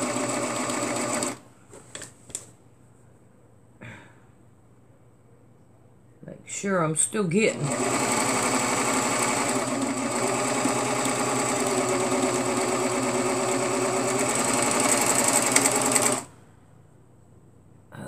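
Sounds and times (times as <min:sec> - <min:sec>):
overlock machine stitching: 0:00.0 - 0:01.4, 0:07.6 - 0:16.3.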